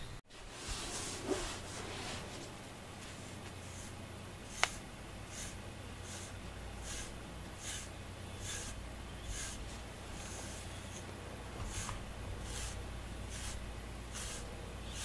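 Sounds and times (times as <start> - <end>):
brush raking through cat fur: 0.3 - 15.0.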